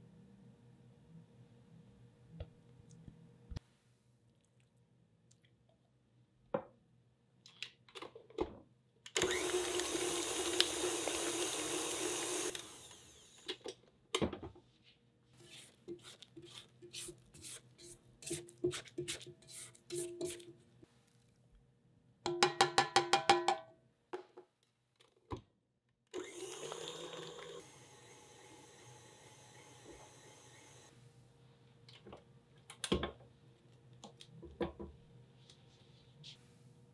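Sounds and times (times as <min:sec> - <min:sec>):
stand mixer motor running: 0:09.2 - 0:13.4, 0:26.2 - 0:30.8
beater knocking against bowl: 0:22.3 - 0:23.6.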